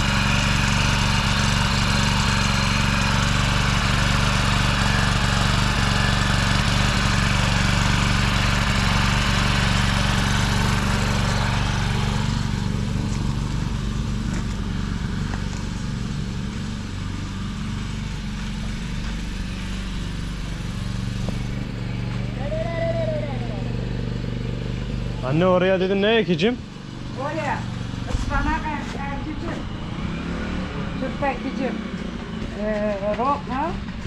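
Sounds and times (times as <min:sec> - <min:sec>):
motor hoe engine running: 0:00.0 - 0:34.0.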